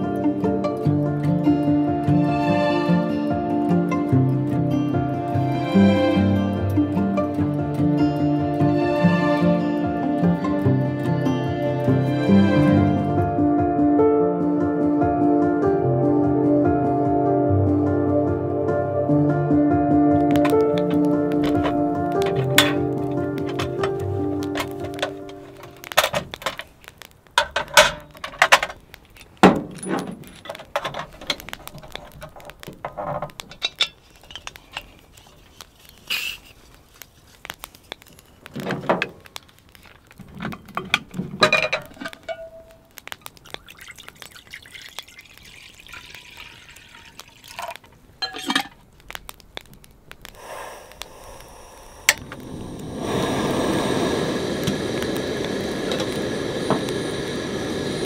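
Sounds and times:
gas burner rushing: 20.3s - 26.6s, 50.3s - 58.0s
metal clinks and knocks: 27.4s - 34.9s, 40.2s - 42.8s.

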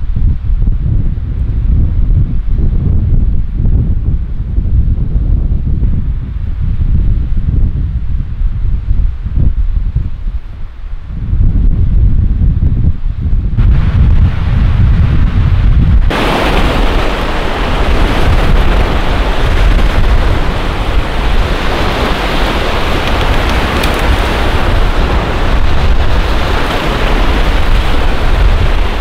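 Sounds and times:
heavy rain pouring: 16.1s - 29.0s.

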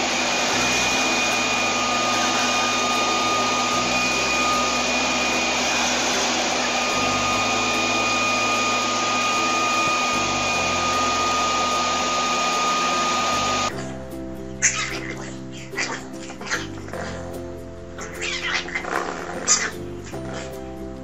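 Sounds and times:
leaf blower running: 0.0s - 13.8s.

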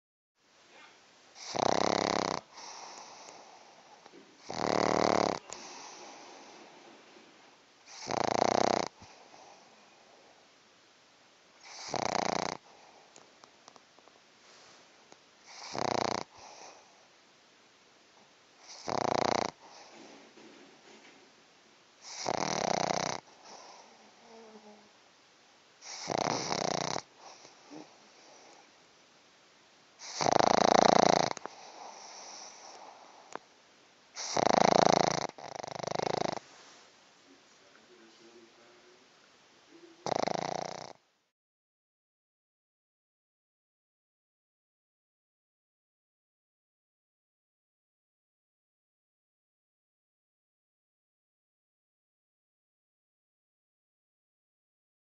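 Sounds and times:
dog snoring: 1.4s - 6.8s, 7.8s - 10.3s, 11.6s - 13.2s, 15.4s - 17.0s, 18.6s - 20.5s, 22.0s - 24.9s, 25.8s - 28.7s, 30.0s - 33.4s, 34.2s - 36.4s, 40.0s - 41.0s
soft dog breathing: 2.4s - 8.2s, 8.9s - 10.5s, 14.4s - 17.1s, 18.6s - 21.2s, 22.0s - 24.9s, 25.8s - 28.8s, 30.0s - 33.5s, 34.1s - 38.8s.

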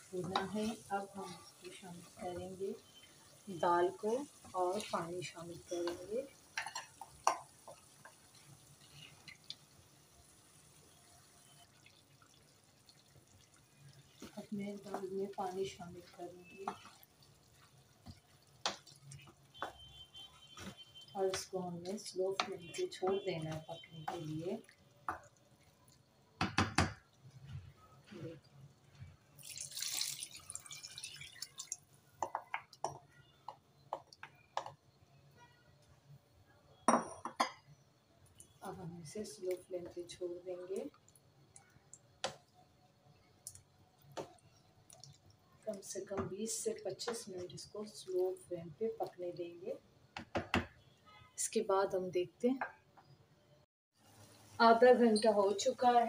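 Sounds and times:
liquid drips and plops: 4.1s - 9.9s, 11.0s - 26.2s, 28.4s - 34.8s, 38.3s - 38.6s, 39.4s - 42.7s, 43.4s - 47.4s
water pouring into a pan: 7.6s - 19.3s, 29.3s - 32.2s.

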